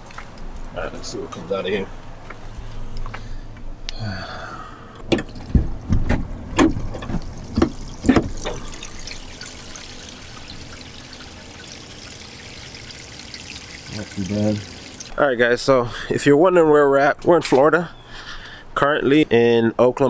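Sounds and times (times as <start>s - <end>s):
low thumps: 5.0s - 8.8s
liquid draining through hose: 6.6s - 15.2s.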